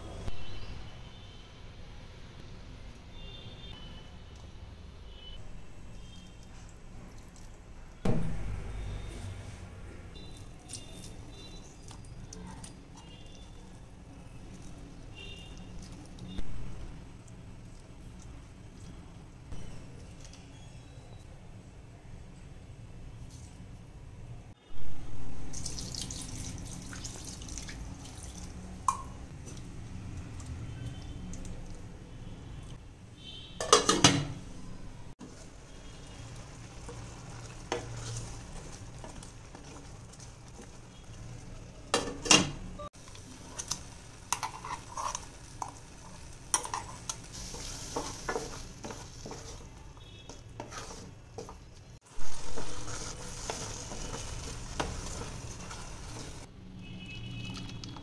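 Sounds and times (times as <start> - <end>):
food sizzling in a pan: 35.2 - 41.9, 43.0 - 56.5
wooden spatula scraping pan: 46.6 - 56.5.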